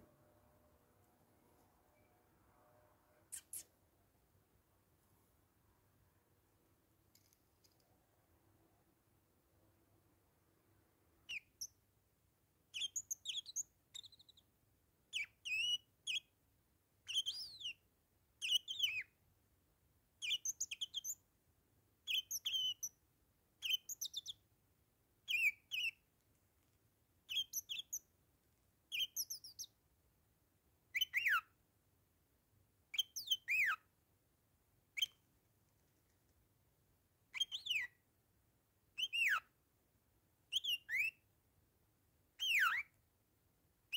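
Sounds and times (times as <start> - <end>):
parakeet chirping: 11.3 - 11.8, 12.7 - 14.5, 15.1 - 16.3, 17.1 - 17.8, 18.4 - 19.1, 20.2 - 21.2, 22.0 - 23.0, 23.6 - 24.4, 25.3 - 26.0, 27.3 - 28.0, 28.9 - 29.8, 30.9 - 31.5, 32.9 - 33.9, 35.0 - 35.2, 37.3 - 38.0, 39.0 - 39.5, 40.5 - 41.2, 42.4 - 42.9.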